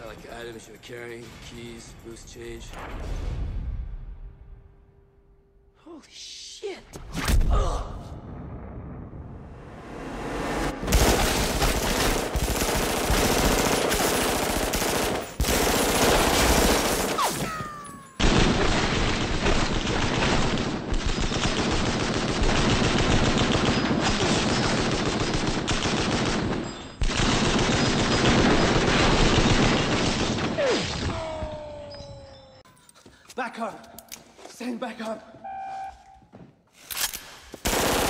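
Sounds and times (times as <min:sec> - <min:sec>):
rapid automatic gunfire: 0:10.9 - 0:17.3, 0:18.2 - 0:30.6, 0:37.6 - 0:38.0.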